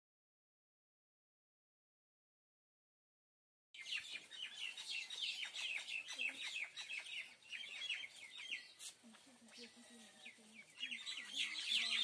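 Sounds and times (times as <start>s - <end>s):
small birds chirping: 3.8s - 12.0s.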